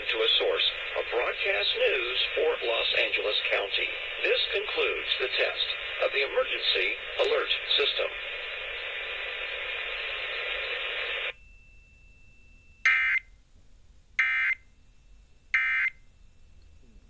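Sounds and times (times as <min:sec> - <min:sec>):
radio hiss: 0:00.0 - 0:11.4.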